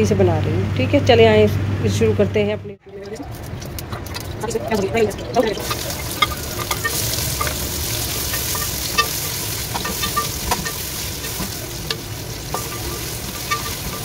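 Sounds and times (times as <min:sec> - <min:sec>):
onions sizzling in hot oil: 0:05.2 - 0:14.0.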